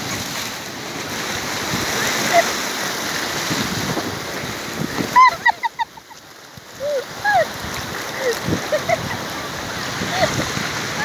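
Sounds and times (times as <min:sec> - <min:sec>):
sea surf on rocks: 0:00.0 - 0:11.0.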